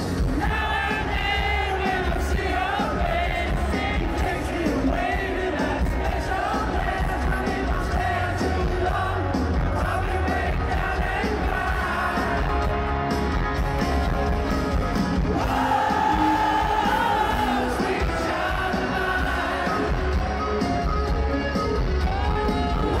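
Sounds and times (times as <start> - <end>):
live rock band: 0.0 - 23.0
man singing lead vocal: 0.1 - 12.7, 15.3 - 20.2.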